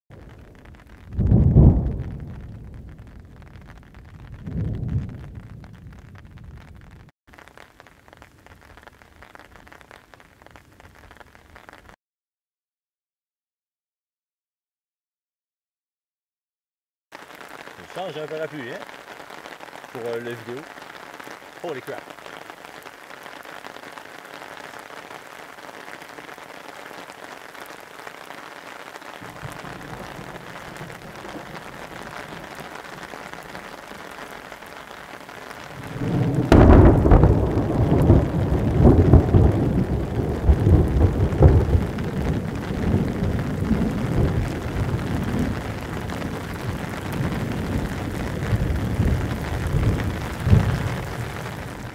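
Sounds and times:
thunder clap and rumble: 0:00.1 - 0:07.1, 0:29.2 - 0:51.9
steady rain falling: 0:00.1 - 0:12.0, 0:17.1 - 0:51.9.

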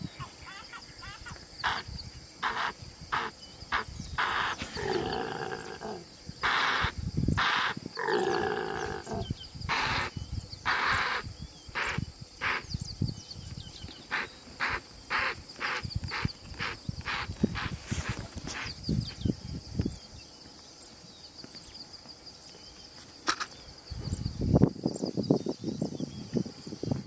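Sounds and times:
large wild animal calling: 0:01.6 - 0:12.6.

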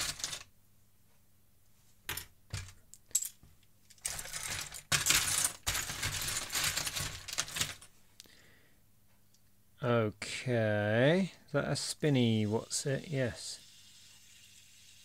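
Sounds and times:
plastic toy pieces clattering: 0:00.0 - 0:00.5, 0:02.5 - 0:07.9.

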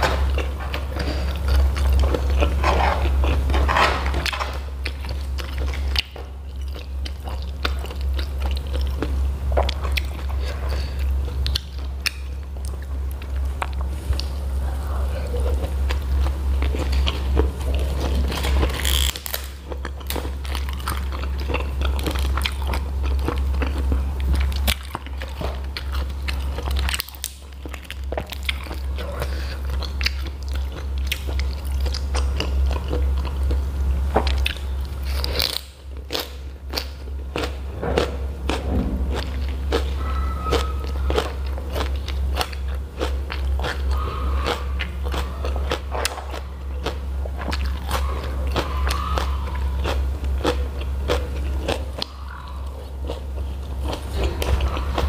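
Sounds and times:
steady low hum: 0:00.0 - 0:55.0
chewing with wet smacks: 0:00.2 - 0:03.6, 0:04.2 - 0:14.4, 0:15.0 - 0:55.0
crunchy bites of vegetables: 0:15.4 - 0:55.0.

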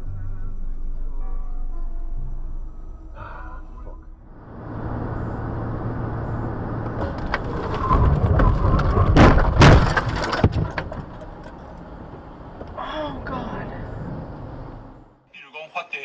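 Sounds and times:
road noise inside car: 0:00.0 - 0:16.0
car collision knocks and crunches: 0:06.8 - 0:12.8
clattering: 0:06.9 - 0:12.8.

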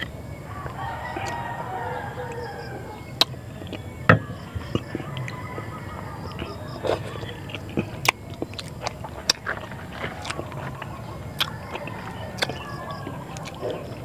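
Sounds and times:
chewing with wet lip smacks: 0:06.3 - 0:14.0.

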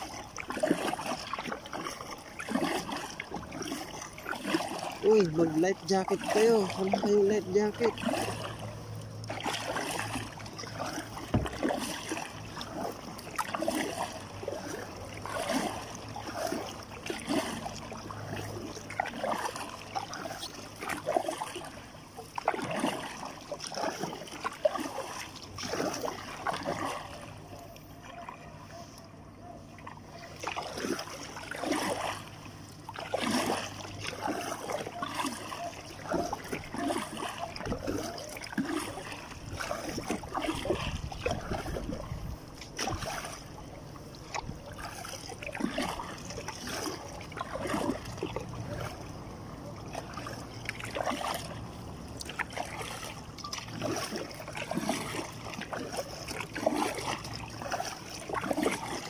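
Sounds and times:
paddle strokes splashing in water: 0:00.0 - 0:59.0.

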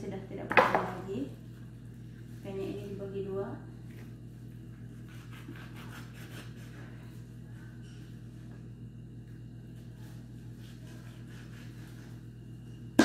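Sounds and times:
steady low hum: 0:00.0 - 0:13.0
knife cutting raw meat: 0:05.0 - 0:06.8, 0:10.6 - 0:11.8.

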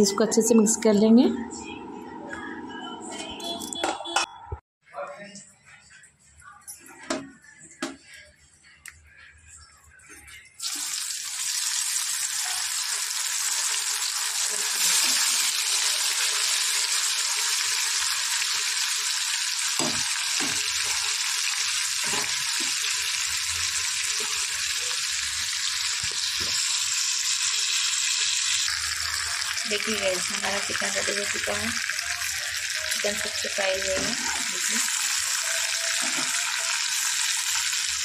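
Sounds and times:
chicken sizzling in hot oil: 0:10.6 - 0:38.0.

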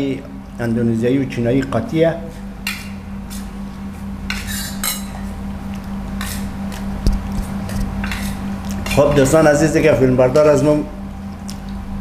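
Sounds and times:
steady low hum: 0:00.0 - 0:12.0
spoons clinking on plates: 0:04.3 - 0:05.3.

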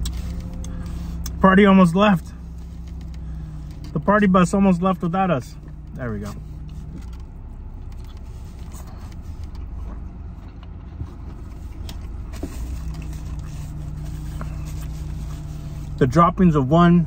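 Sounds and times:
car engine idling: 0:00.0 - 0:17.0
man chewing: 0:06.7 - 0:15.6.

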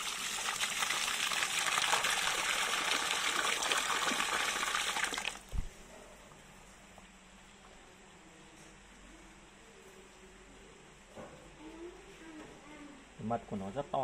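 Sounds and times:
water pouring into basin: 0:00.0 - 0:05.6.

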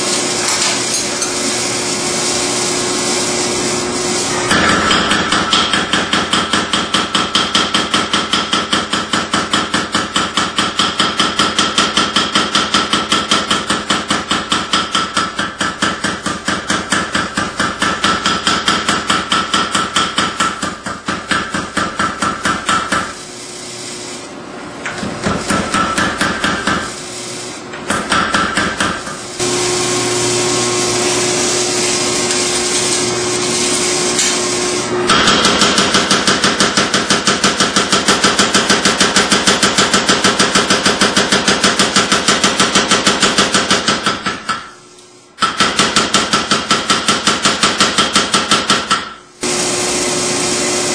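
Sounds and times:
power hammer pounding steel: 0:04.4 - 0:23.2, 0:25.0 - 0:26.9, 0:27.8 - 0:29.3, 0:35.1 - 0:44.8, 0:45.4 - 0:49.2
machine humming: 0:29.3 - 0:35.7, 0:49.4 - 0:50.9.

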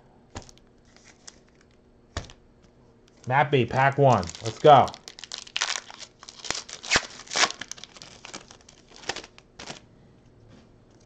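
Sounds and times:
foil wrapper crinkling: 0:00.4 - 0:02.4, 0:03.7 - 0:09.9.

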